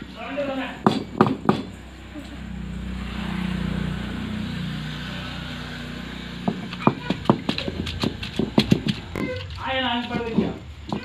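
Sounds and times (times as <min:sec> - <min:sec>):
stone roller grinding: 0:06.4 - 0:11.0
stone knocking on slab: 0:06.5 - 0:09.3, 0:10.0 - 0:11.0.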